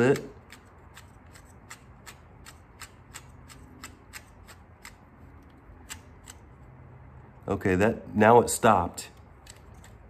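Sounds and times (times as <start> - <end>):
plastic gears clicking: 0.0 - 5.0.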